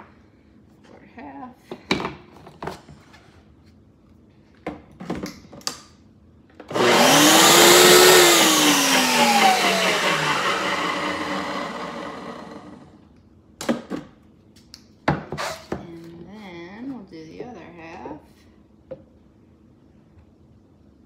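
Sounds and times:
blender motor whine: 0:06.7 - 0:13.0.

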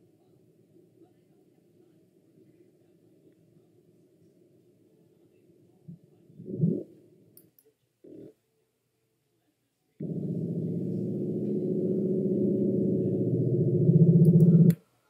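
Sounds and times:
deep rumbling tone: 0:10.0 - 0:14.7.

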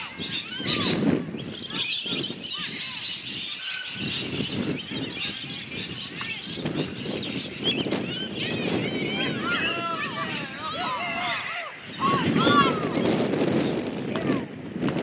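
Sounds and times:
people shouting and calling out: 0:08.0 - 0:14.6.

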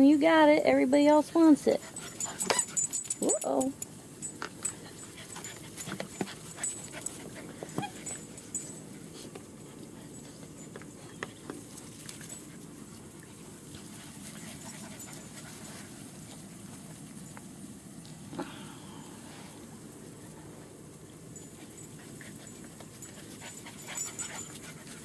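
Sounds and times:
puppies panting: 0:01.6 - 0:17.0, 0:21.1 - 0:25.0.

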